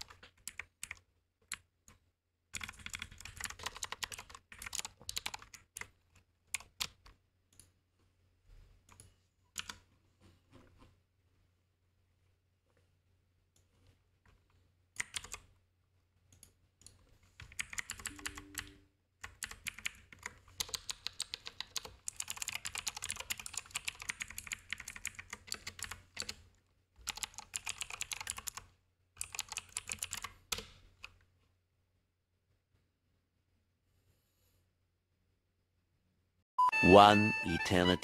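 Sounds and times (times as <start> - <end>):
typing on computer keyboard: 0.0 - 1.7, 2.5 - 7.2, 9.6 - 9.8, 15.0 - 15.5, 16.4 - 26.4, 27.0 - 31.2.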